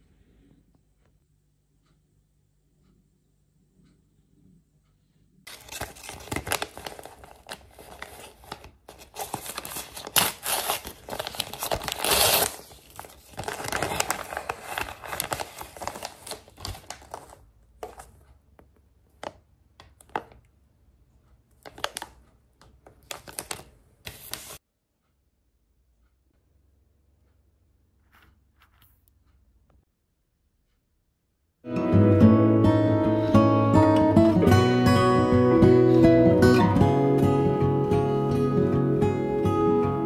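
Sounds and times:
plastic bag crinkling and tearing: 0:05.5 - 0:18.0, 0:21.6 - 0:22.2, 0:23.0 - 0:24.6.

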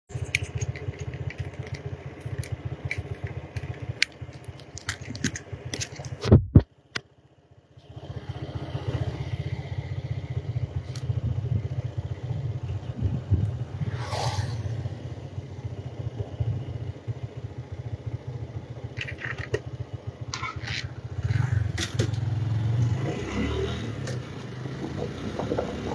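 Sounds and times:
clicks and rattles: 0:00.1 - 0:07.0, 0:18.9 - 0:19.7
motorcycle engine rumble: 0:00.1 - 0:25.9
wind noise: 0:06.1 - 0:06.7, 0:12.6 - 0:14.8.

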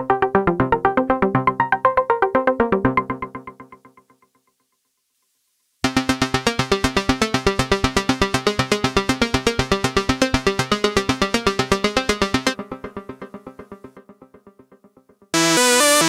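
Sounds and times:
synthesizer arpeggio: 0:15.4 - 0:16.0.

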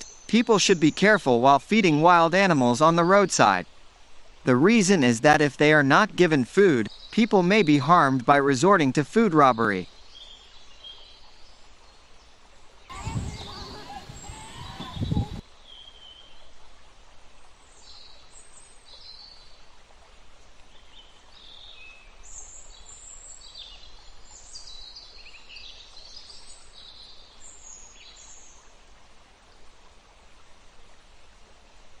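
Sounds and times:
faint outdoor hiss: 0:00.0 - 0:32.0
birds chirping: 0:12.9 - 0:15.4.

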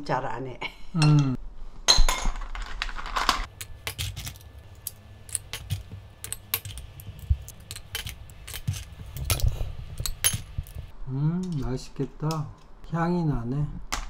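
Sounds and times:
shells clicking and clinking: 0:02.4 - 0:10.9.

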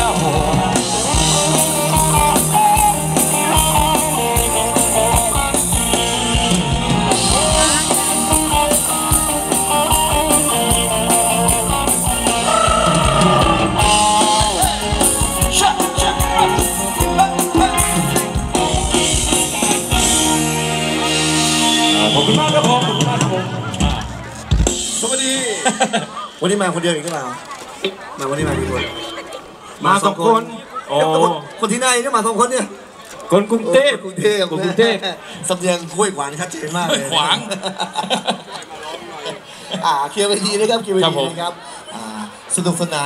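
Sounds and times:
live band playing dance tune: 0:00.0 - 0:26.3, 0:28.2 - 0:29.8
held notes ringing: 0:28.4 - 0:29.7.

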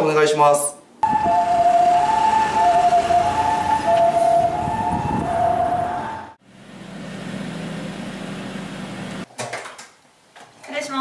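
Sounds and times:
two-tone ambulance siren: 0:01.0 - 0:06.4.

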